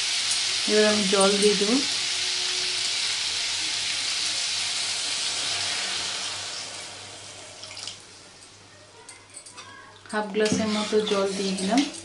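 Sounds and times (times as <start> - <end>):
water pouring into pan: 0.0 - 8.1
curry sizzling in a hot pan: 0.0 - 8.5, 10.2 - 12.0.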